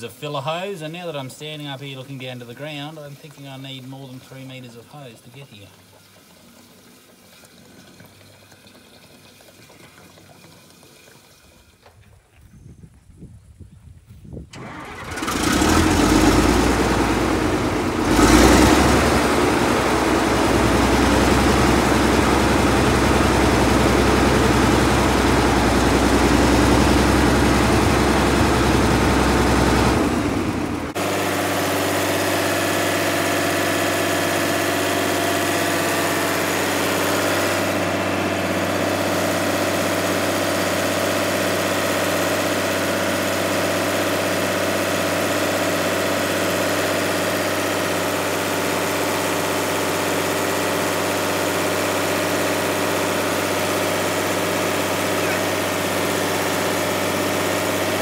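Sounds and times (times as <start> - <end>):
diesel engine running: 14.5 - 58.0.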